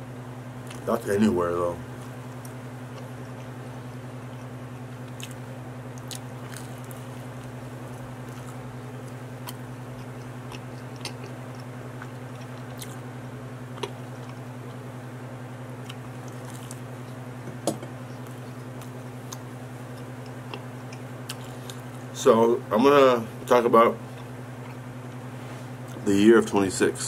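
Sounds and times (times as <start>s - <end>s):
steady low hum: 0.0s - 27.0s
close chewing: 2.0s - 3.6s, 4.2s - 13.1s, 13.7s - 14.8s, 15.8s - 17.2s, 18.2s - 22.1s.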